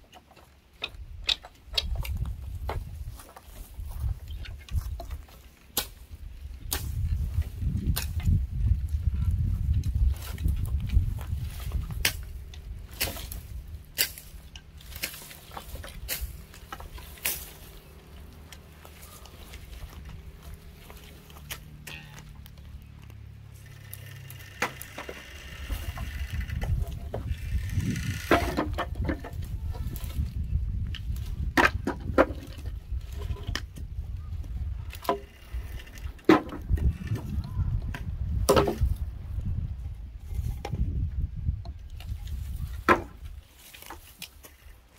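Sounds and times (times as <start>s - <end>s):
wooden poles knocking together: 0.0s - 39.0s, 40.2s - 44.8s
footsteps in dry brush: 0.8s - 28.3s
rustling: 2.0s - 31.5s, 41.9s - 44.9s
wood knocking on wood: 24.5s - 30.0s, 34.9s - 38.9s, 42.7s - 43.3s.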